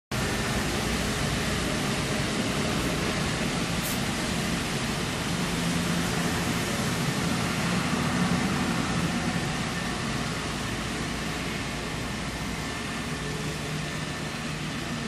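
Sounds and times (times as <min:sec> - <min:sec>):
metro train rolling past: 0:00.2 - 0:15.0
brief high hiss: 0:03.8 - 0:04.1.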